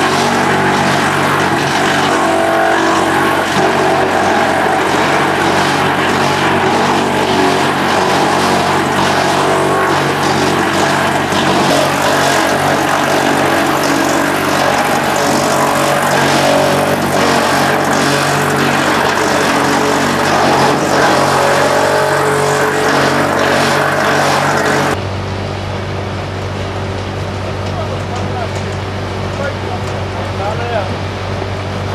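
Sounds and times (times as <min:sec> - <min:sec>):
wood chips pouring: 0:00.0 - 0:25.0
wood chipper running: 0:00.0 - 0:31.9.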